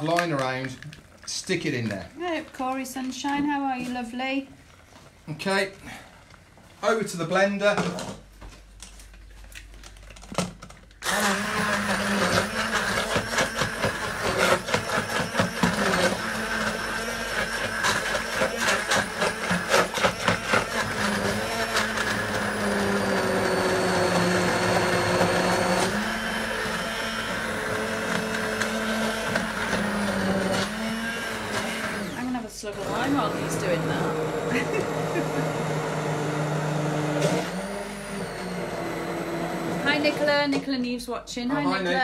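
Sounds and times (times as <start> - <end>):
stick blender motor running: 11.0 - 40.6.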